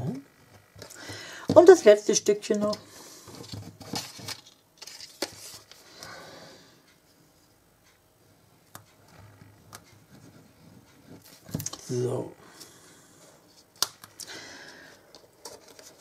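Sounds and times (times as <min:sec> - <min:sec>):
cardstock rustling: 0:02.6 - 0:05.8, 0:15.1 - 0:16.0.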